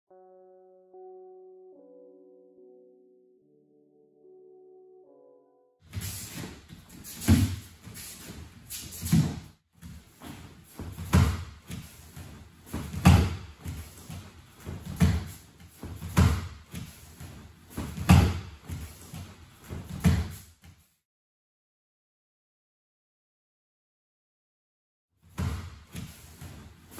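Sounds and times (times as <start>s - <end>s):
light footsteps on mats: 5.9s - 20.8s
bodies thudding on mats: 10.2s - 12.0s, 12.7s - 17.0s, 17.7s - 20.4s.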